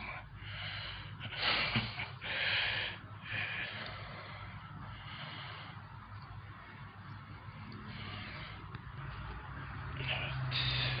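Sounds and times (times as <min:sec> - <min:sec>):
breathing close to microphone: 0:00.0 - 0:11.0.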